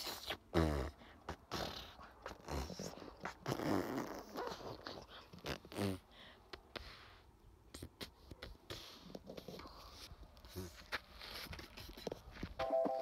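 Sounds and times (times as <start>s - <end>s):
footsteps on rocky ground: 10.7s - 13.0s.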